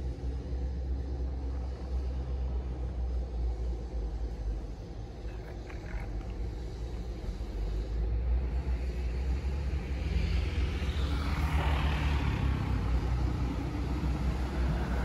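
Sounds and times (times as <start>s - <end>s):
steady low rumble: 0.0s - 15.0s
vehicle passing: 9.3s - 15.0s.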